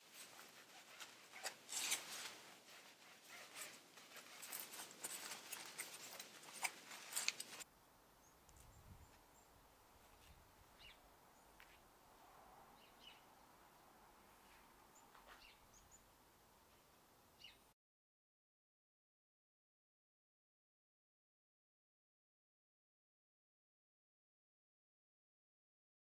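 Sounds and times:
faint outdoor background: 0:00.0 - 0:17.8.

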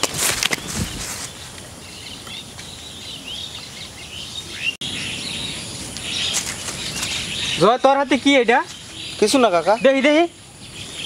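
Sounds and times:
rustling: 0:00.0 - 0:02.8
outdoor background noise: 0:00.0 - 0:11.0
small birds chirping: 0:00.5 - 0:11.0.

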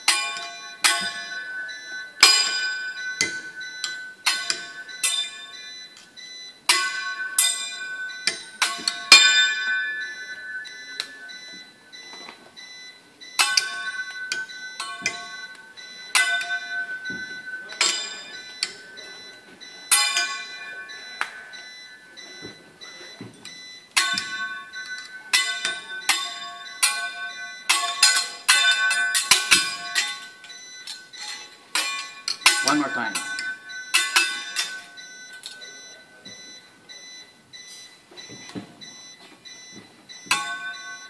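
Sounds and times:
metal spatula and fork clanging: 0:00.0 - 0:06.1, 0:06.7 - 0:11.2, 0:13.4 - 0:21.5, 0:23.4 - 0:35.8, 0:40.3 - 0:41.0.

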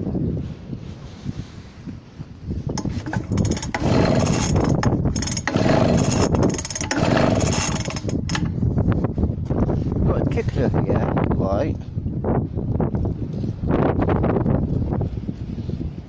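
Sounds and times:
petrol engine turning over: 0:02.8 - 0:08.6.

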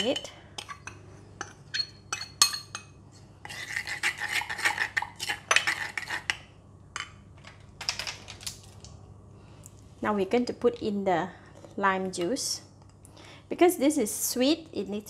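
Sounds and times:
spoon scraping stone mortar: 0:00.0 - 0:02.8, 0:03.4 - 0:06.4.

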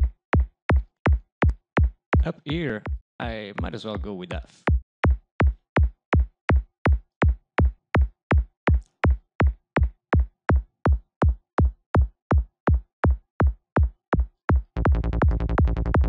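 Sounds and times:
synthesised kick drum thumps: 0:00.0 - 0:16.0
rolling bass line: 0:14.8 - 0:16.0.

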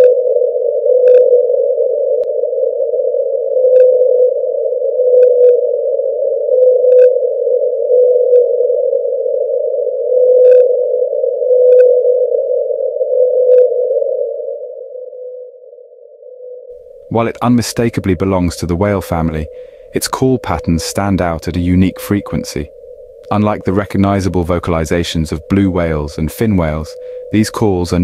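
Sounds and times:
short steady whale call tones: 0:00.0 - 0:00.2, 0:06.6 - 0:09.1, 0:10.2 - 0:17.2, 0:18.9 - 0:23.5, 0:25.5 - 0:27.7
ocean noise: 0:16.0 - 0:28.0.

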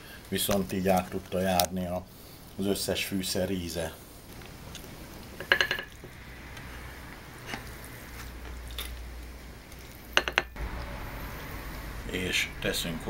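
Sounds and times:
spatula tapping china plate: 0:05.4 - 0:05.9, 0:10.2 - 0:10.6.

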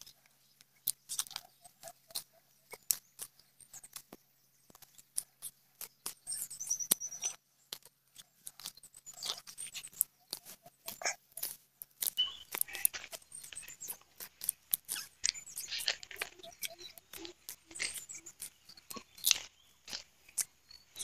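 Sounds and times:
knife scraping into soil: 0:10.9 - 0:21.0
grass being pulled: 0:12.0 - 0:21.0.

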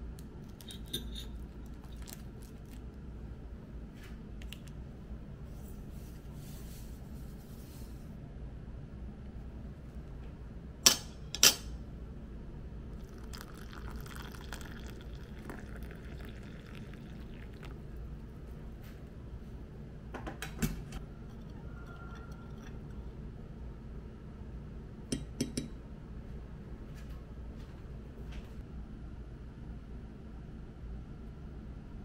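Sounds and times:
water poured into glass cup: 0:13.0 - 0:17.9
metal spoon clinking glass: 0:21.3 - 0:23.0.

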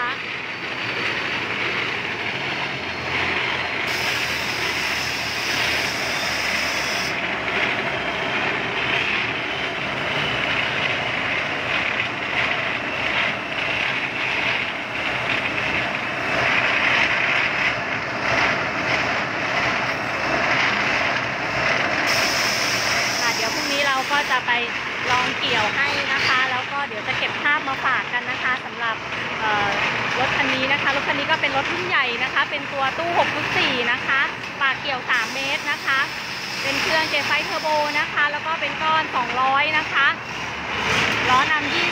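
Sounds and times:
combine harvester diesel engine: 0:00.0 - 0:41.9.

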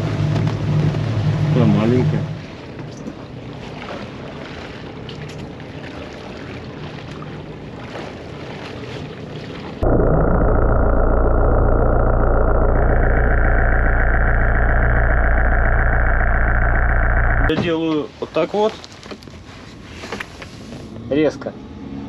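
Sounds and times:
water around a boat: 0:00.0 - 0:10.8, 0:17.5 - 0:22.0
wind: 0:00.0 - 0:12.0, 0:17.5 - 0:22.0
muffled underwater engine drone: 0:00.0 - 0:17.5
faint low engine hum: 0:00.0 - 0:18.9.

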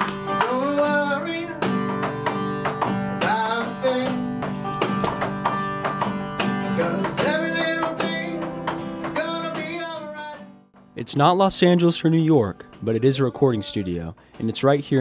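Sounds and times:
strummed acoustic guitar: 0:00.0 - 0:15.0
man singing: 0:00.3 - 0:04.6, 0:06.7 - 0:10.6, 0:11.2 - 0:15.0
sustained keyboard notes: 0:10.8 - 0:15.0.

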